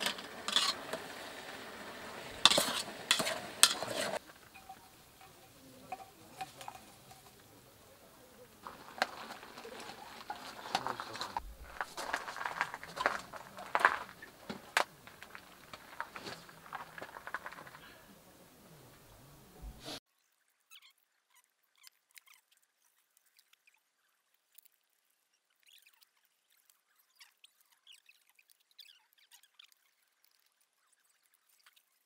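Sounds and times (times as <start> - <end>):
utensils clicking against pan: 0.0 - 7.8
stew sizzling in a skillet: 0.0 - 17.8.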